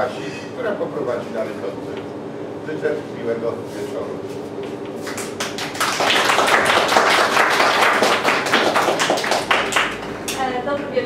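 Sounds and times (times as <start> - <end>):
audience applauding: 5.0 - 10.2.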